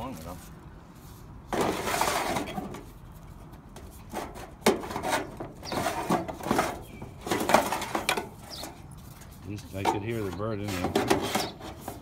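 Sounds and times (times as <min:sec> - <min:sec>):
strip scraping inside downspout: 0:00.0 - 0:12.0.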